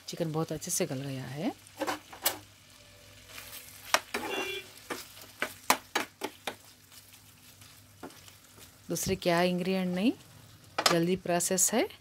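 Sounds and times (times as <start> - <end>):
oil sizzling: 0.0 - 12.0
metal spatula scraping a wok: 3.2 - 4.8.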